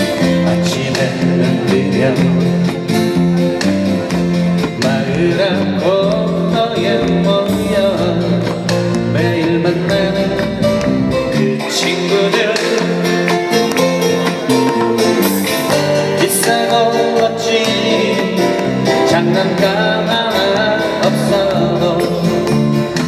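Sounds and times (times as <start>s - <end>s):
person singing: 0.0s - 2.9s, 4.6s - 23.0s
bass line: 0.0s - 23.0s
strummed acoustic guitars: 0.0s - 23.0s.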